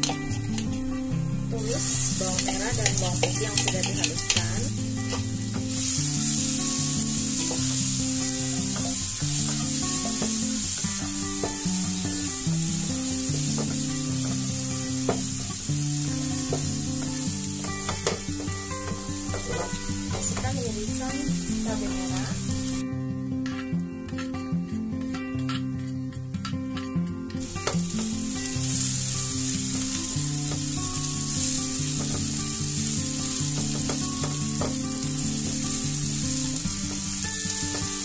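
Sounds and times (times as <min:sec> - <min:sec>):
paste sizzling in hot oil: 0:00.0 - 0:22.8, 0:27.4 - 0:38.0
spatula clicking on pan: 0:01.8 - 0:11.6
spatula scraping a wok: 0:01.8 - 0:20.5.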